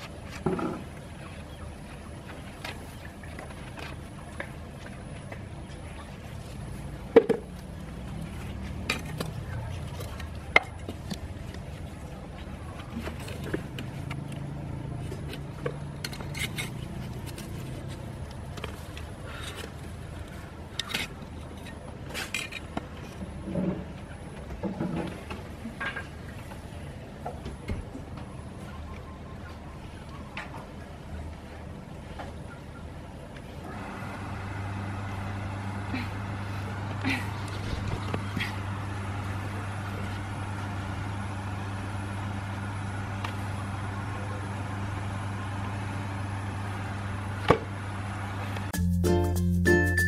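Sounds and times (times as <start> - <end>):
motor humming: 33.6 - 48.7.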